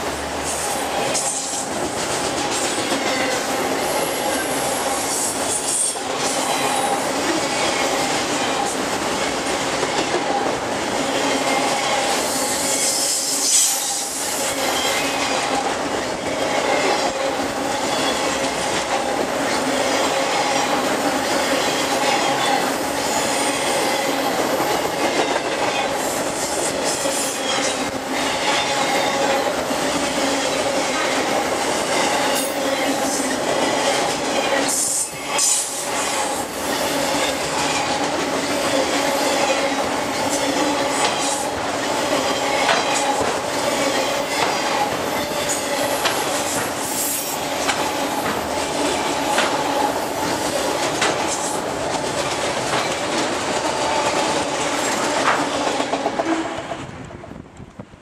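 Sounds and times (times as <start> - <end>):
train wheels rumbling on rail: 0.0 - 58.0
wheels clicking over rail joints: 14.4 - 57.8.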